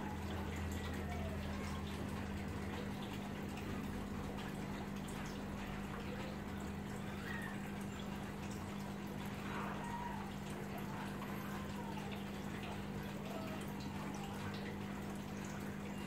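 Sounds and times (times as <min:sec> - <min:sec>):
aquarium pump hum: 0:00.0 - 0:16.0
water trickling and dripping: 0:00.0 - 0:16.0.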